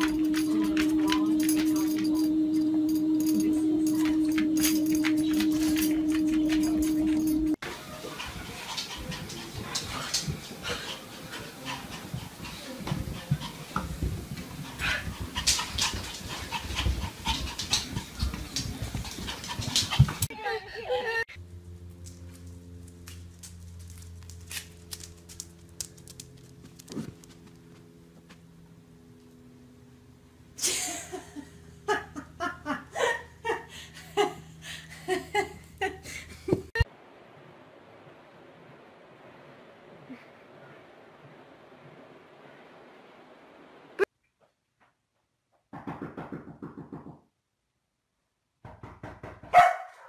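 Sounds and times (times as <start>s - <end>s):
paws thumping on carpeted stairs: 11.7s - 20.3s
person laughing hard: 30.6s - 36.8s.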